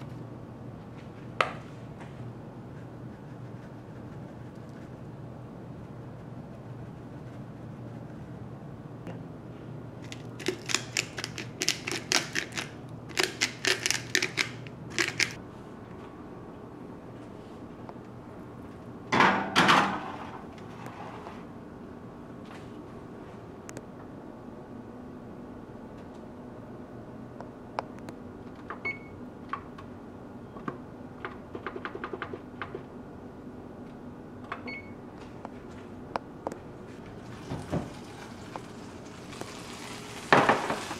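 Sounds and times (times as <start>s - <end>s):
low steady hum: 0.0s - 31.5s
spice tin shaking clicks: 10.1s - 15.4s.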